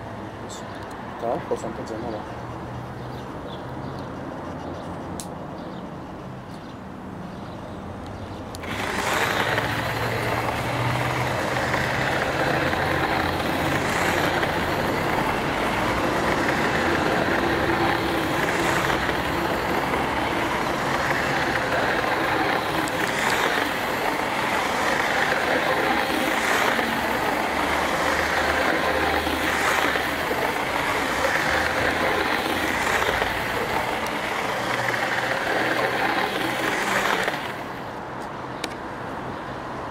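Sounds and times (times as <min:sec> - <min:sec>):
model train motor whirring: 0:08.5 - 0:38.0.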